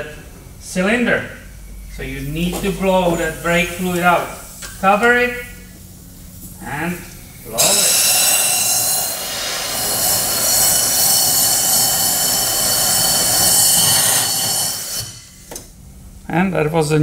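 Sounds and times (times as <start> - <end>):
compressed air blow gun hissing: 6.3 - 15.6.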